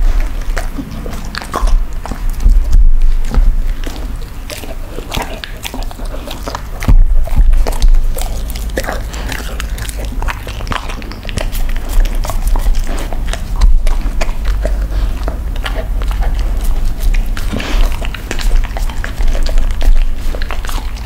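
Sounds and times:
dog chewing a crumbly treat: 0.0 - 21.0
dog licking a wooden board: 0.0 - 21.0.

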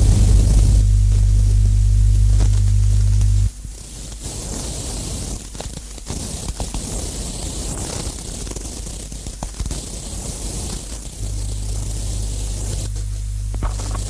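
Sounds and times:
heavy low drone: 0.0 - 3.5, 11.2 - 14.0
harsh noise hiss: 0.0 - 14.0.

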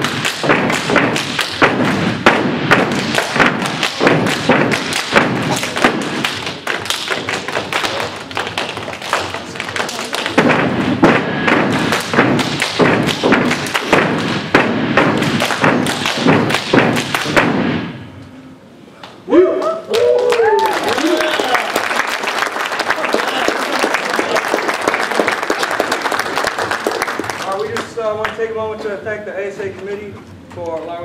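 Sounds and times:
foot stomps and hand claps: 0.0 - 18.0, 20.0 - 29.0.

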